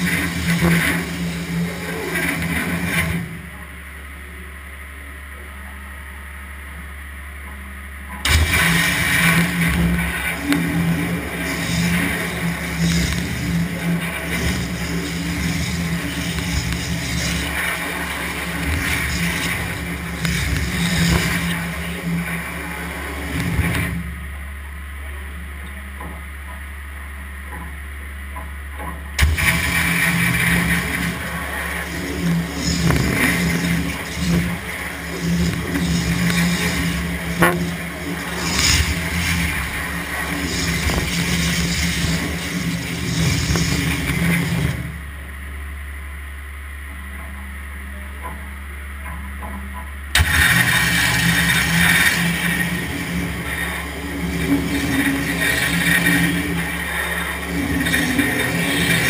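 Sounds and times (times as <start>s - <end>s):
low motor hum: 0.0s - 59.0s
cutting machine hiss: 8.2s - 23.8s, 29.2s - 44.9s, 50.2s - 59.0s.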